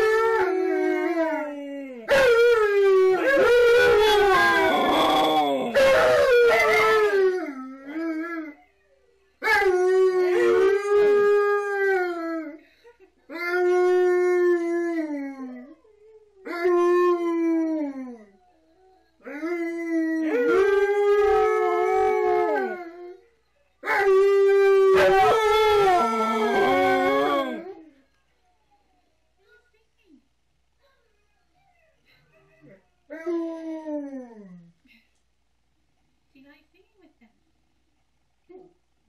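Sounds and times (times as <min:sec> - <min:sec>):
dogs howling: 0:00.0 - 0:07.5, 0:20.2 - 0:23.2, 0:23.8 - 0:27.8.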